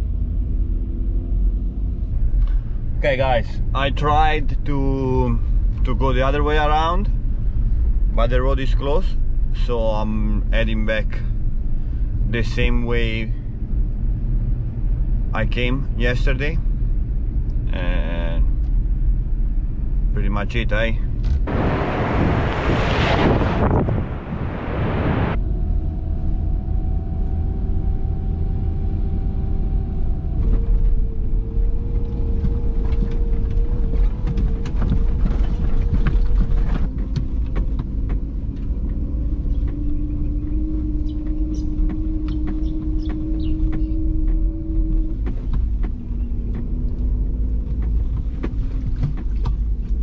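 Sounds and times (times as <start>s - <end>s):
car engine running: 0.0s - 50.0s
low road rumble: 0.0s - 50.0s
vehicle rattles and knocks: 29.7s - 50.0s.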